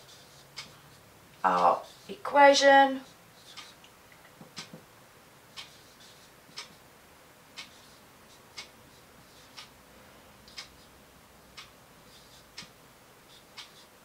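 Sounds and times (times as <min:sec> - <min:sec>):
clock ticking: 0:00.5 - 0:00.7, 0:05.5 - 0:05.7, 0:06.5 - 0:06.8, 0:07.5 - 0:07.8, 0:08.5 - 0:08.8, 0:09.5 - 0:09.7, 0:10.5 - 0:10.8, 0:11.5 - 0:11.8, 0:12.5 - 0:12.8, 0:13.5 - 0:13.8.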